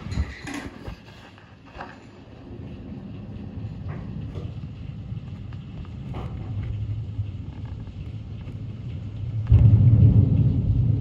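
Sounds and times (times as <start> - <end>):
steady rain: 0.0 - 11.0
rolling thunder: 2.2 - 11.0.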